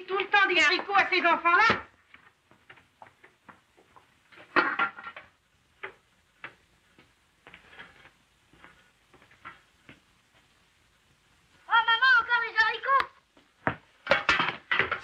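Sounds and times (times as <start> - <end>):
metal pots and lids clattering: 4.3 - 5.3, 14.0 - 15.0.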